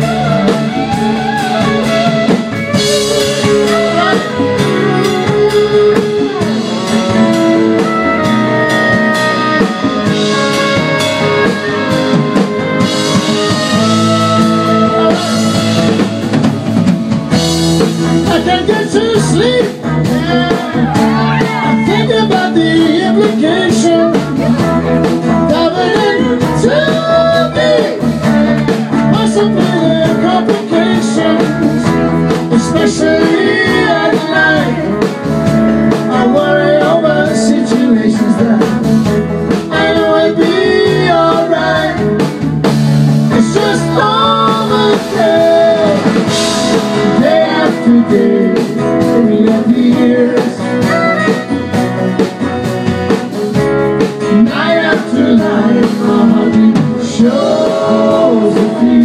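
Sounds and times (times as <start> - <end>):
guitar lead bending in pitch: 0.0 - 19.0, 50.6 - 53.4
live rock band playing: 0.0 - 59.0.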